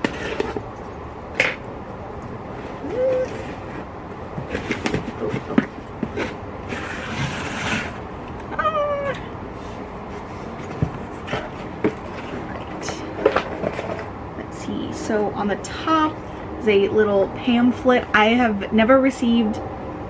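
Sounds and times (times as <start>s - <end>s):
cardboard box rustling and scraping: 0.0s - 0.7s, 2.5s - 8.2s, 9.5s - 14.1s.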